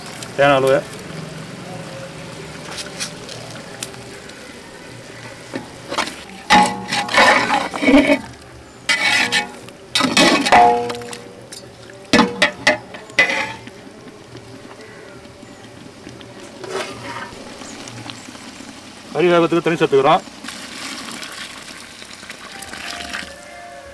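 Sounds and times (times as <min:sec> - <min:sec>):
steel ladle scraping metal pot: 0:05.5 - 0:13.7, 0:16.6 - 0:17.4.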